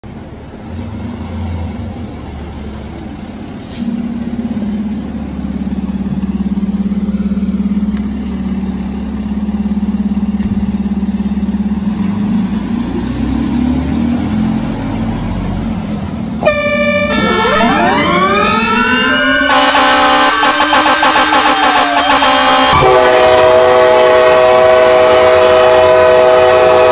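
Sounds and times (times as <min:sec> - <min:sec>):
diesel truck engine running: 0:00.0 - 0:25.8
pulsing warning tone: 0:16.4 - 0:23.8
air horn blast: 0:16.4 - 0:26.9
sirens winding up: 0:16.4 - 0:26.9.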